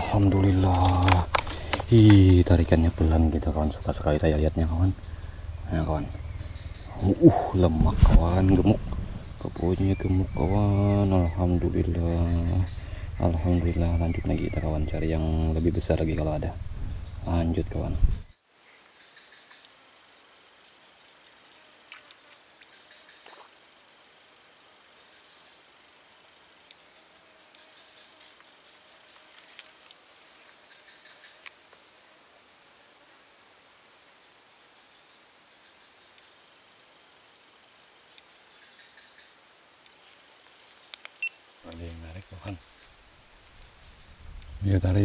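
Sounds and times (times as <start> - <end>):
insects chorus: 0.0 - 45.0
faint clicks: 0.1 - 2.5.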